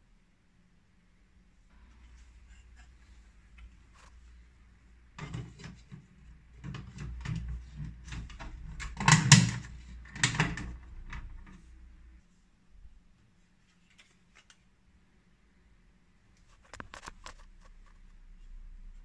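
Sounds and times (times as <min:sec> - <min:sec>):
plastic clacks and scraping: 0:05.2 - 0:11.7, 0:16.6 - 0:18.0.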